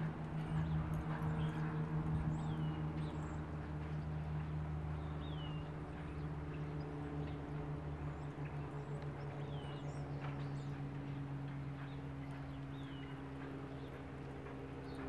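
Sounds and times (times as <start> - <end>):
low mechanical hum: 0.0 - 15.0
muffled hoofbeats on dirt: 9.3 - 15.0.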